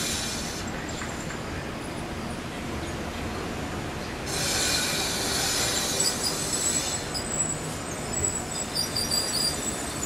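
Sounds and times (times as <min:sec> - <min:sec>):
train wheels squealing on rails: 0:00.0 - 0:03.1, 0:04.2 - 0:10.0.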